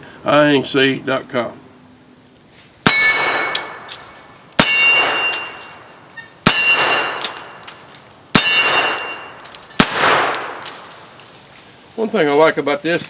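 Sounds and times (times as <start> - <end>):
rifle shots: 2.8 - 5.8, 6.4 - 7.6, 8.3 - 11.0
metallic ringing: 2.8 - 10.6.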